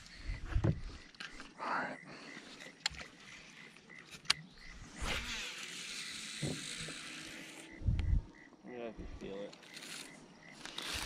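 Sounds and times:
fishing reel spool whirring: 4.3 - 8.5, 9.4 - 11.0.

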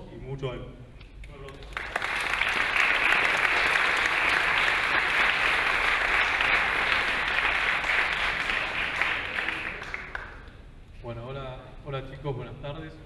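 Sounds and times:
audience applauding: 1.5 - 10.5.

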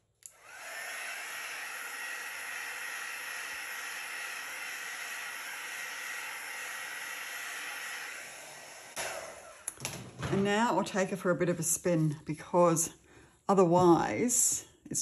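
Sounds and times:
heat tool fan whining: 0.2 - 9.8.

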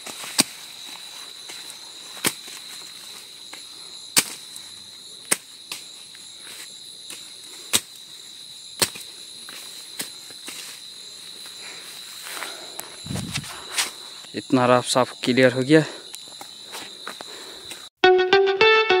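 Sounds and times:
machete chopping stalks: 0.0 - 0.9, 1.5 - 2.7, 3.5 - 4.6, 5.2 - 8.1, 8.8 - 10.8
high drone of insects: 0.0 - 18.0.

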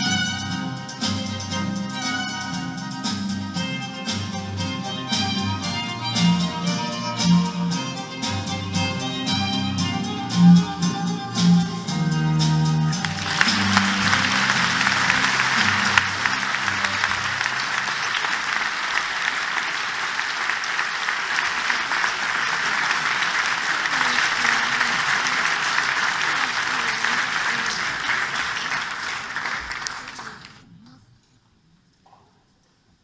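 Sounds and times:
large audience applauding: 13.0 - 30.7.

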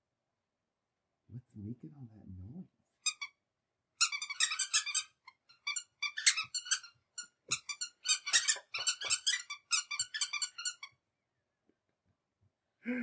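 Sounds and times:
squeaker shoes squeaking: 4.0 - 10.9.

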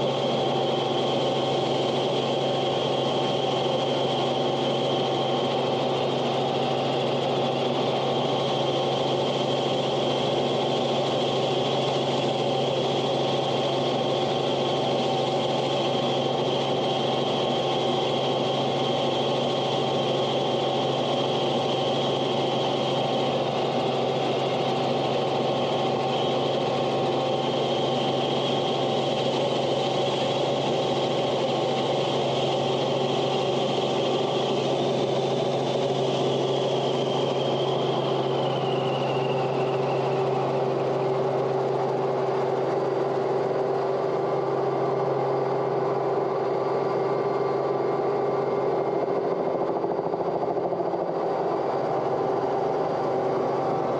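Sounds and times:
engine drone: 0.0 - 53.9
high whine: 31.4 - 44.1.

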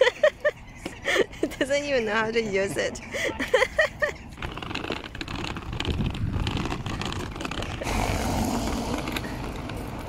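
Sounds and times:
suitcase wheels rattling on pavement: 0.0 - 10.0.

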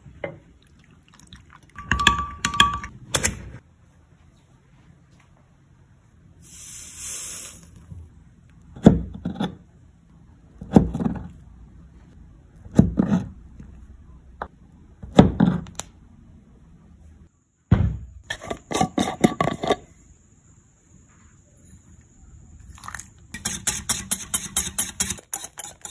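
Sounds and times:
short hiss: 6.4 - 7.8.

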